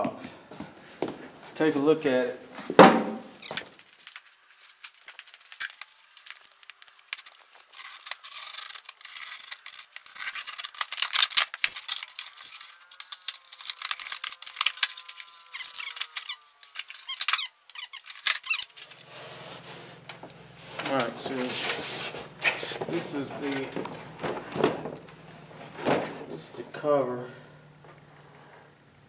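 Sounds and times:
cardboard squeak: 0:03.4 - 0:03.8, 0:04.8 - 0:20.0, 0:20.8 - 0:26.4
cardboard scraping and crackling: 0:03.4 - 0:26.6.

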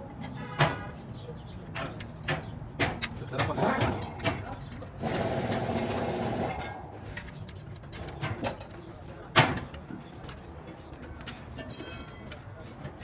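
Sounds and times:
metal wheel nuts clinking: 0:00.2 - 0:13.0
steady mechanical noise: 0:02.0 - 0:10.5.

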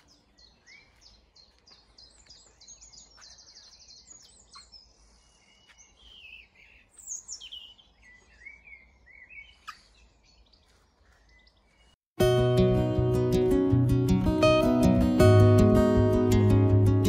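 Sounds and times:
songbirds singing: 0:00.0 - 0:12.0.

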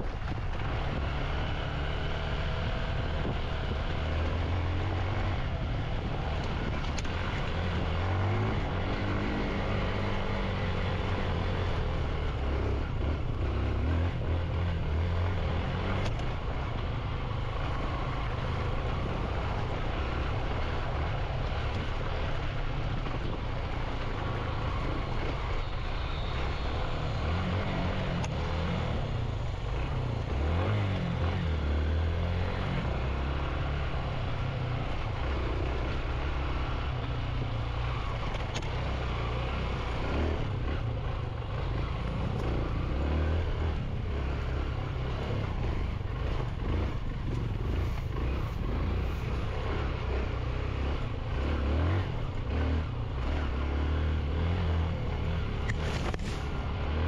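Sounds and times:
motorcycle engine revving: 0:00.0 - 0:57.0
wind and road noise: 0:00.0 - 0:57.0.

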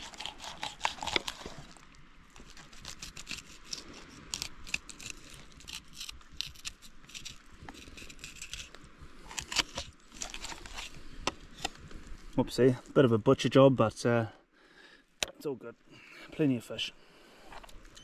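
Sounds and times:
knife cutting fish: 0:00.0 - 0:01.8.

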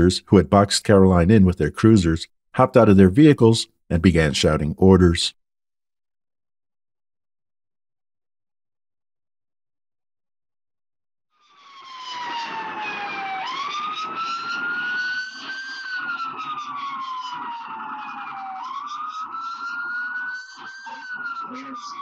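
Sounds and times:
police siren wailing: 0:11.4 - 0:22.0
car engine and road noise: 0:11.7 - 0:22.0.

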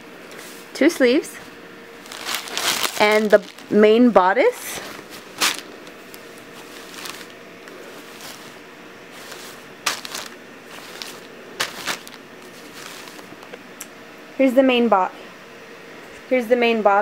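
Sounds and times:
cloth rustling: 0:02.0 - 0:03.8, 0:04.5 - 0:13.4.

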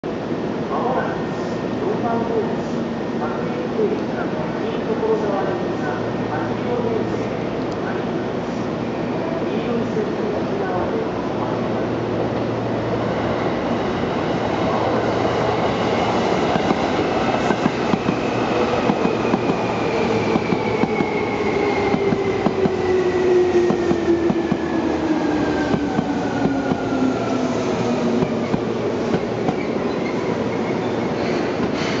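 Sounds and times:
train wheels rumbling: 0:13.3 - 0:32.0.

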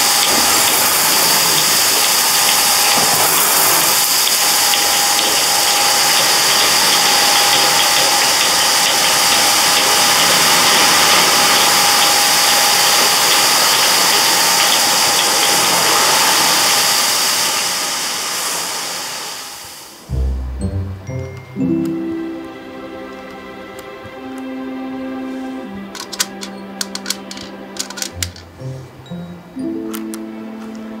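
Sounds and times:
music: 0:20.1 - 0:31.0.

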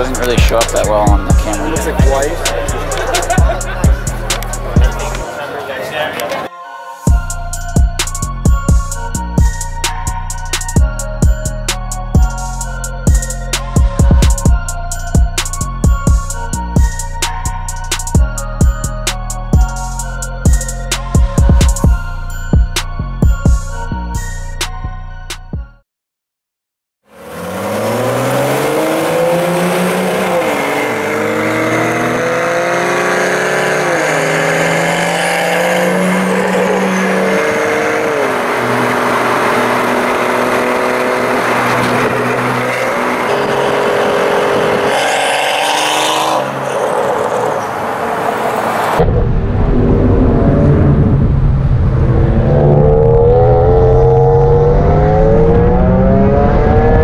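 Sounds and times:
car engines at full throttle: 0:00.0 - 0:05.3, 0:27.1 - 0:57.0
road and wind rumble: 0:00.0 - 0:05.5, 0:27.2 - 0:57.0.

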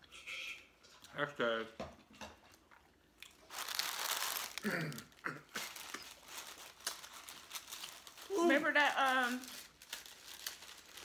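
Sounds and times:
paper wrappers crinkling: 0:03.4 - 0:11.0.

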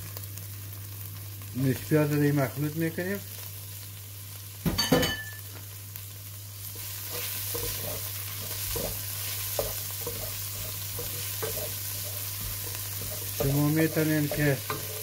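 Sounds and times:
onions sizzling in oil: 0:00.0 - 0:15.0
wooden spoon scraping pot: 0:07.1 - 0:15.0.

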